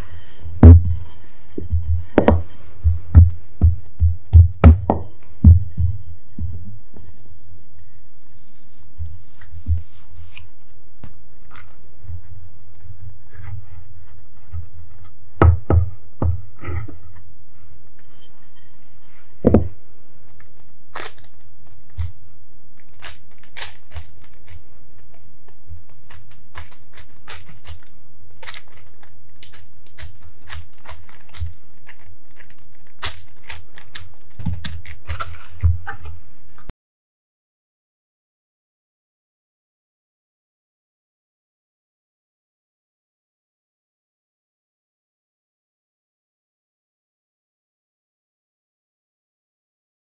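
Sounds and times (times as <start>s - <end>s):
steady low hum: 0.0s - 36.7s
parchment paper crinkling: 7.0s - 15.2s, 20.2s - 36.7s.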